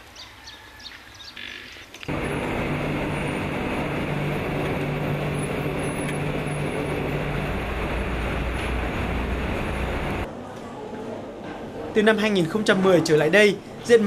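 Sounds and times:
low machine hum: 2.1 - 10.3
rolling machines running: 2.1 - 10.3.

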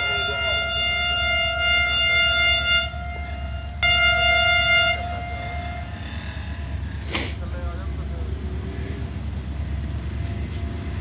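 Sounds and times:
locomotive air horn blasts: 0.0 - 7.2
low engine rumble: 0.0 - 11.0.

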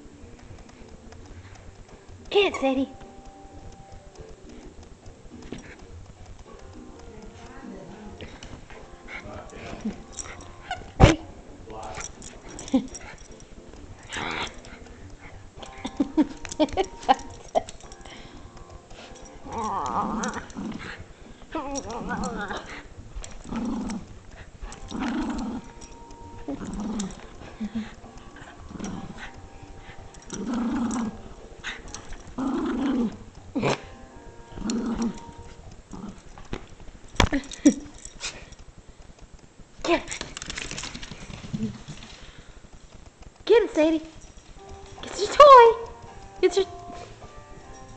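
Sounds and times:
dog growling: 4.4 - 38.6.

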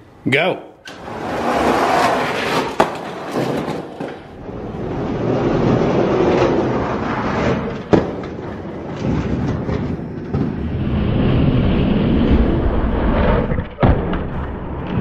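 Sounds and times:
toy trucks rolling on plastic track: 0.9 - 10.4.

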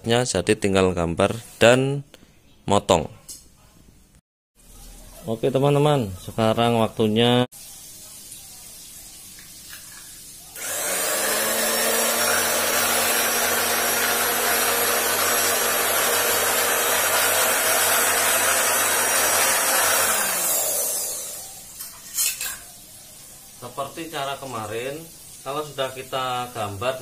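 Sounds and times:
cloth cutting machine whining: 10.6 - 21.6.

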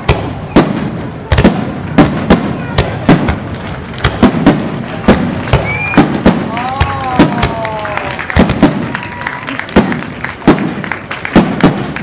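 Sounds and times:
firework shells bursting: 0.0 - 12.0
falling firework whistle: 5.5 - 6.2.

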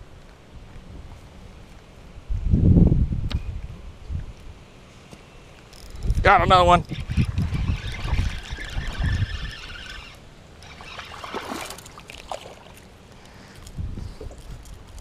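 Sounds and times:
wind rumble on microphone: 0.0 - 4.6, 5.9 - 10.2, 13.6 - 15.0
spinning reel winding: 5.8 - 11.9
water splashing: 6.8 - 13.1.

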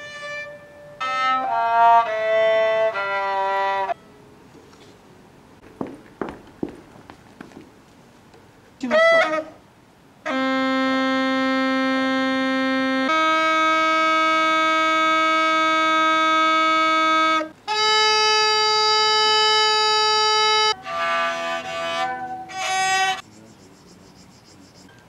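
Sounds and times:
bagpipe holding long notes: 0.0 - 4.0, 10.3 - 23.2
bowed fiddle: 0.0 - 4.0, 10.3 - 23.9.

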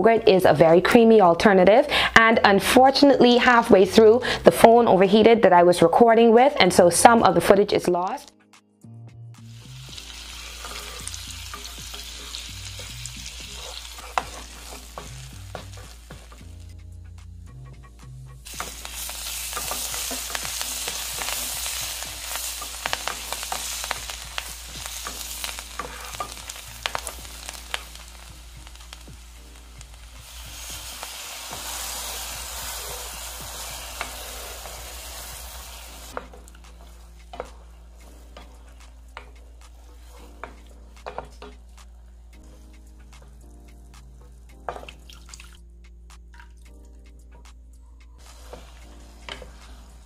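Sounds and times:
butter sizzling in a frying pan: 9.4 - 16.6, 18.4 - 43.0, 48.2 - 50.0
wooden spatula scraping and tapping: 10.4 - 16.6, 18.4 - 28.0, 36.1 - 45.0, 48.2 - 50.0.

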